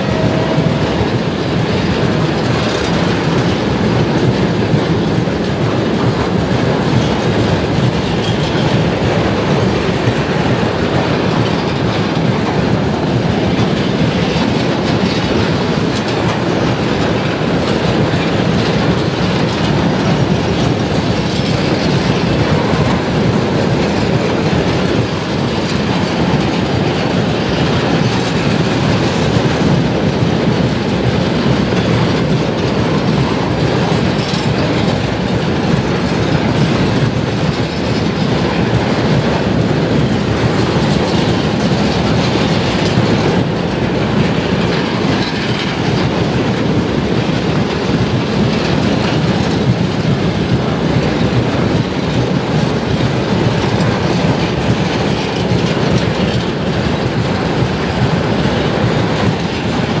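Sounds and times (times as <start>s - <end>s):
freight train wheels on rails: 0.0s - 60.0s.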